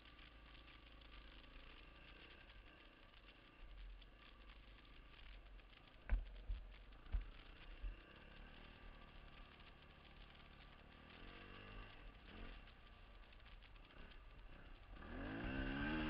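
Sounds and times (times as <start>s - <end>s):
dirt bike engine revving: 7.2s - 16.0s.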